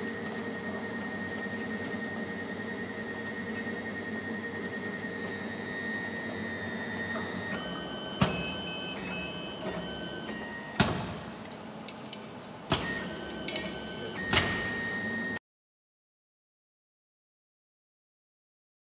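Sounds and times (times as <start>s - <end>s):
machine motor whine: 0.0s - 11.5s, 12.7s - 15.4s.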